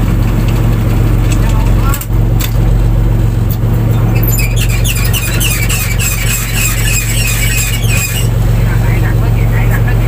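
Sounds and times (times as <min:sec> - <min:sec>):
boat engine humming: 0:00.0 - 0:10.0
high squeaky chirps: 0:04.1 - 0:08.4.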